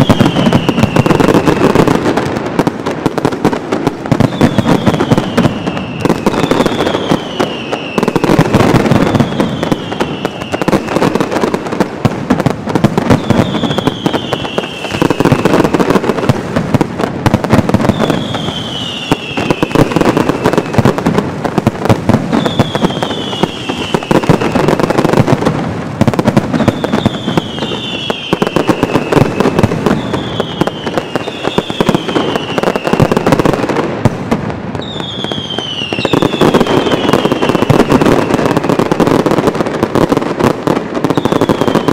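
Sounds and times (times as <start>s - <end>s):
firecrackers barrage: 0.0s - 41.9s
falling whistle: 17.9s - 19.8s.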